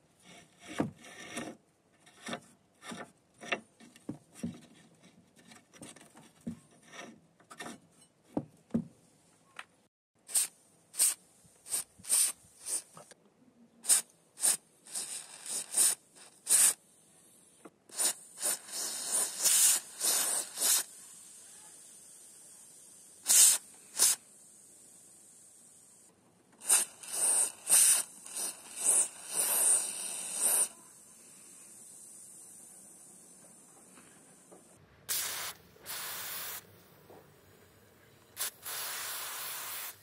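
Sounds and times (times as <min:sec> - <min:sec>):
aerosol can spraying: 0:10.3 - 0:13.0, 0:13.9 - 0:16.8, 0:17.9 - 0:22.2, 0:23.2 - 0:24.2, 0:26.6 - 0:32.1, 0:35.1 - 0:36.7, 0:38.4 - 0:40.0.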